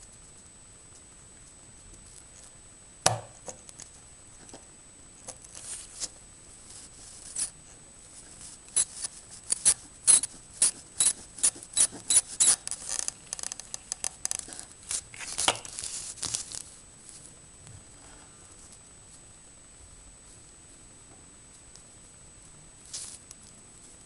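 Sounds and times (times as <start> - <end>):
solder flux crackling and popping: 0.0 - 17.3.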